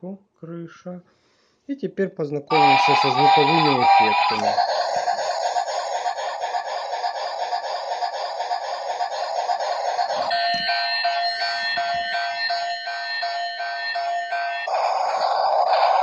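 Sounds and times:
electronic beeping tune: 2.5 - 4.5, 10.2 - 14.7
pulsing rushing toy train noise: 2.5 - 16.0.

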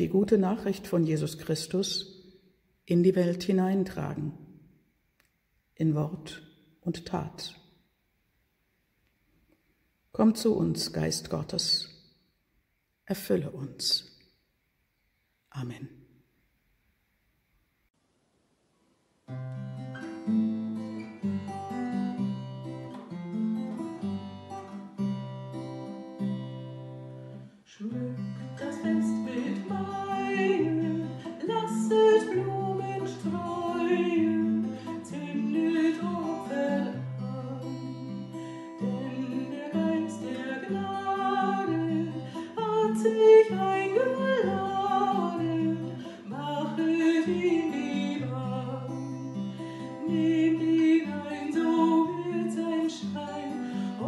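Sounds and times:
acoustic guitar: 0.0 - 4.8, 5.8 - 7.9, 19.2 - 54.0
woman singing: 27.7 - 54.0.

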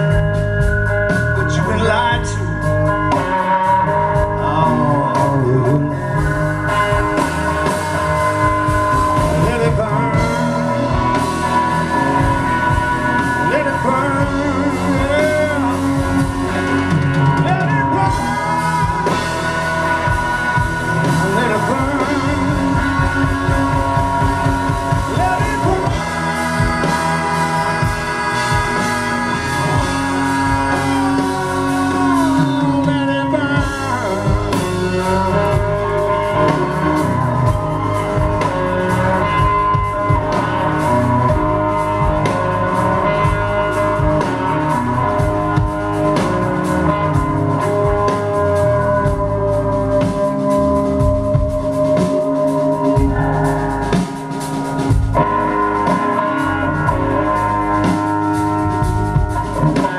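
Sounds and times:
bass guitar: 0.0 - 59.9
electric guitar: 0.0 - 59.9
man singing into microphone: 1.4 - 2.7, 4.0 - 6.8, 9.1 - 12.2, 13.2 - 20.4, 21.0 - 36.4.

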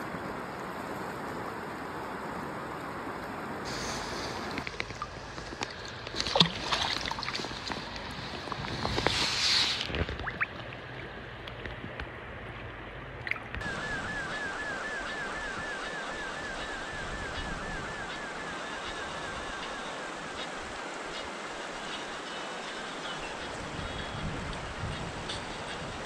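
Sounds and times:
river flowing hiss: 0.0 - 11.4, 13.6 - 26.0
water splashing and sloshing: 0.0 - 23.7.

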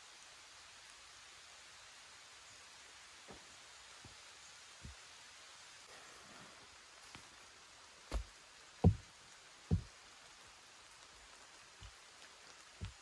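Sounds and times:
rocks knocking together: 8.1 - 9.1, 9.7 - 9.9.

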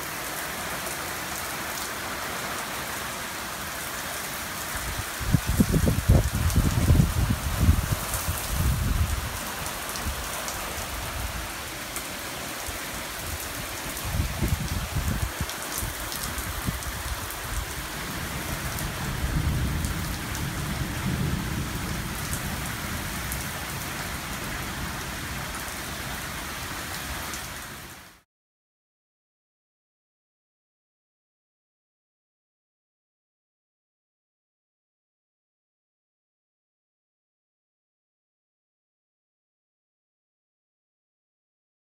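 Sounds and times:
heavy rain pouring: 0.0 - 28.2
thunder rumbling: 5.2 - 11.3, 14.0 - 25.0.

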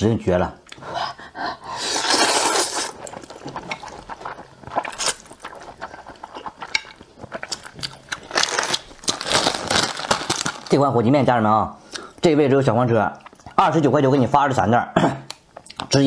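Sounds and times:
slurping noodles: 1.7 - 4.1.

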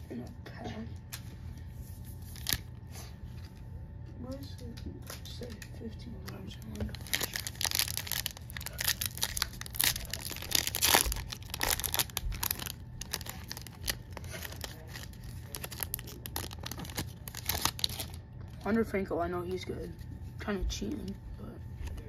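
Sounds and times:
foil wrapper ripping and crinkling: 2.2 - 2.7, 6.3 - 18.2.

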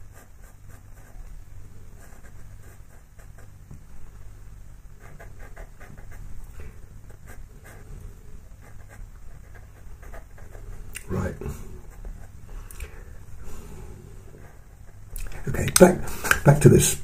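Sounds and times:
pencil scratching on paper: 0.0 - 1.3, 2.0 - 3.6, 5.0 - 12.4
steady low hum: 0.0 - 17.0.

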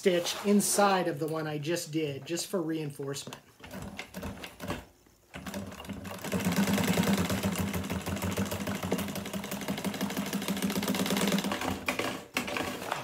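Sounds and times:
industrial sewing machine stitching: 5.4 - 13.0.

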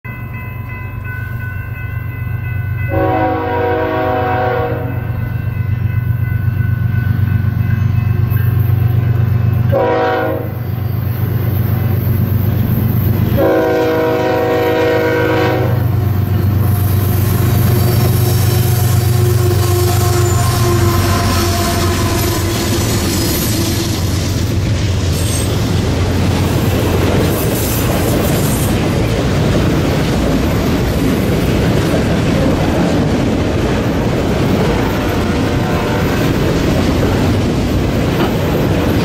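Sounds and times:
diesel locomotive rumble: 2.5 - 39.0
train air horn blasts: 2.9 - 5.0, 9.7 - 10.8, 13.3 - 16.0, 16.6 - 24.2, 34.8 - 36.4.

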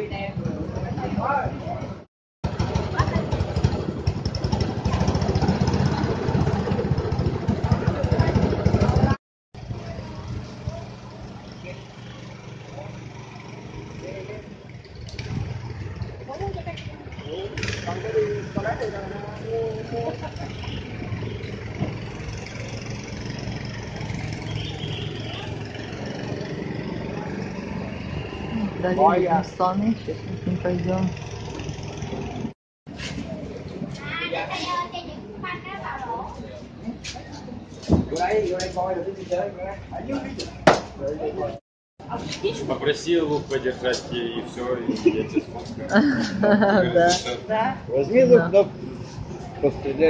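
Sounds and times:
small engine puttering: 2.5 - 28.8.

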